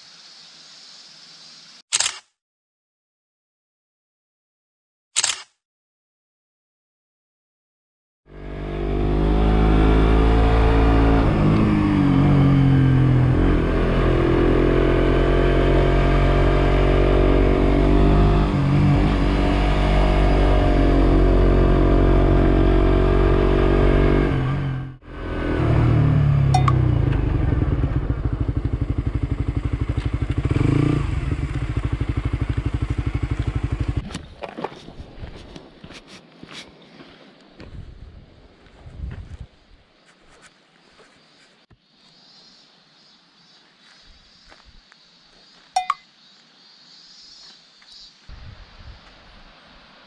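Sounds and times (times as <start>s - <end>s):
motorcycle engine revving: 8.3s - 34.1s.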